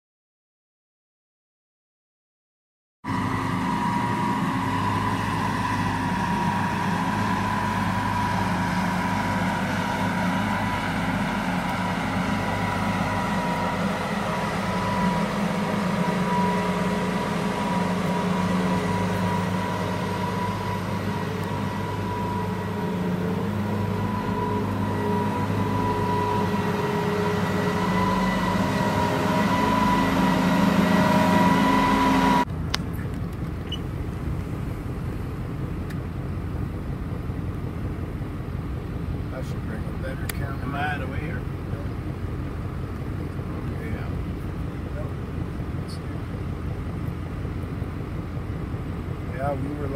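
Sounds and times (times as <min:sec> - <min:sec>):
combine harvester engine drone: 0:03.0 - 0:49.9
high whine: 0:03.1 - 0:32.5.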